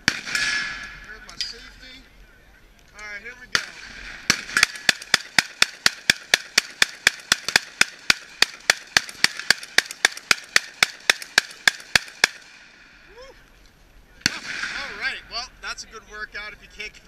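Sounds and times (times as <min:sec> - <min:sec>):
shotgun firing rapidly: 0:03.5 - 0:12.5, 0:14.3 - 0:15.0.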